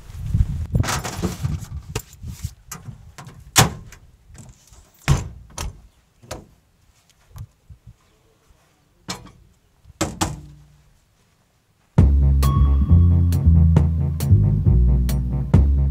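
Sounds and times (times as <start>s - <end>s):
rear hatch banging shut: 2.7s - 4.0s, 5.0s - 6.5s, 10.0s - 10.6s
tailgate slamming shut: 3.2s - 4.0s, 5.0s - 6.5s, 10.0s - 10.6s
hatch latching knocks: 10.0s - 10.6s.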